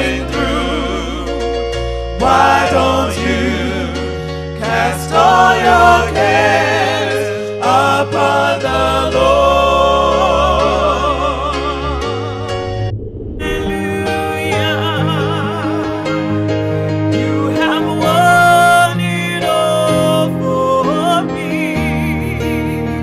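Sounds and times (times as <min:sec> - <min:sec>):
voices singing with vibrato: 0:00.0 - 0:01.4, 0:02.2 - 0:12.8
bass notes: 0:00.0 - 0:06.0, 0:10.4 - 0:17.4.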